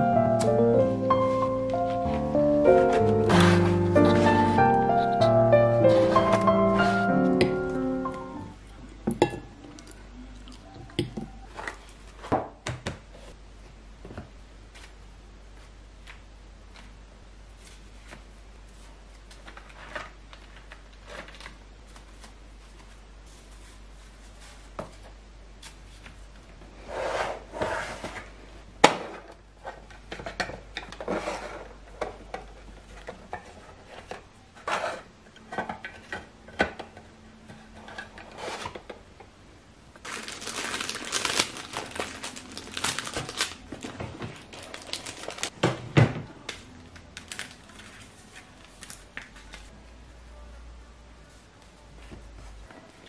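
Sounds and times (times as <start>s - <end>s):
papers rustling: 0.4s - 7.8s, 17.6s - 26.5s, 40.0s - 45.6s.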